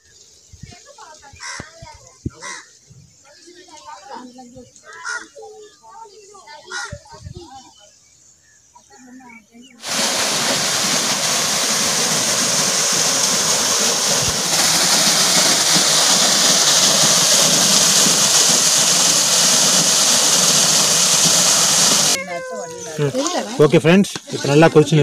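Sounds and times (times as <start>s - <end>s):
water pouring and splashing: 9.8s - 22.2s.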